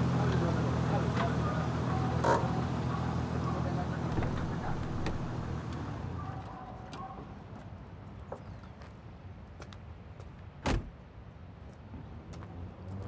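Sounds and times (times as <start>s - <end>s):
car door slamming: 4.1s - 5.6s, 10.6s - 10.9s
small door clicks: 4.1s - 5.8s.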